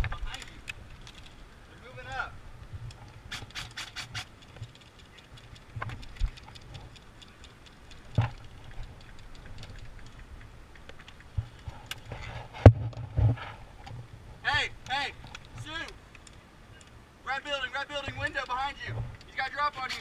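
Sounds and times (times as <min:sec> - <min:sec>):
sharp clicks and ticks: 0:02.9 - 0:12.1, 0:14.8 - 0:20.0.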